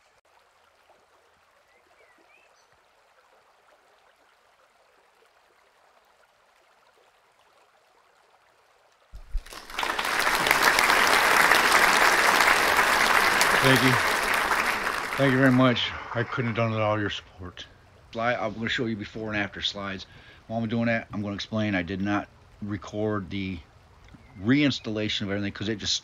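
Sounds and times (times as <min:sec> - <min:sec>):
faint hiss: 0:09.2 - 0:25.9
loud applause: 0:09.3 - 0:17.2.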